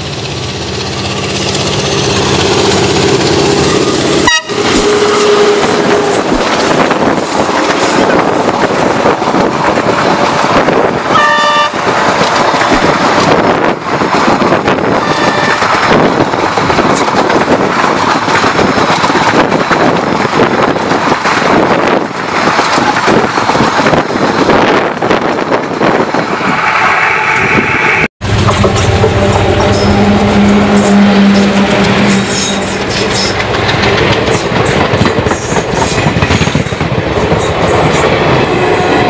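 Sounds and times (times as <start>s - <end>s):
diesel locomotive passing: 0.0s - 39.0s
train coaches rumbling past: 0.0s - 39.0s
train horn blast: 4.1s - 6.2s, 11.1s - 11.8s, 15.0s - 15.7s, 28.2s - 33.0s.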